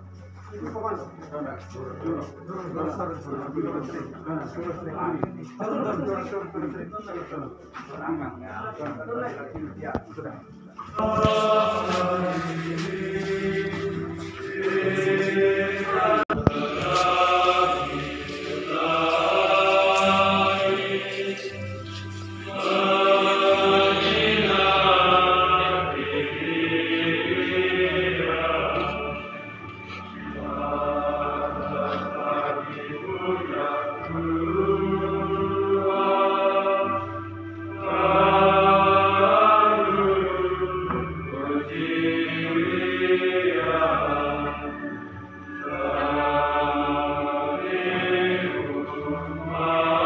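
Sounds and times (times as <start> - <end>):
group singing a slow hymn: 10.8 - 50.0.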